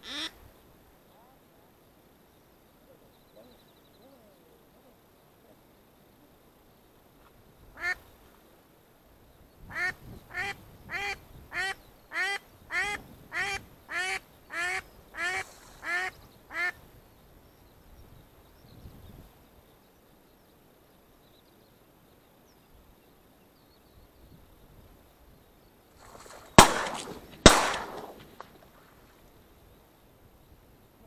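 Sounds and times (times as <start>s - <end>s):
duck quacking: 0.0s - 0.4s, 9.7s - 16.8s.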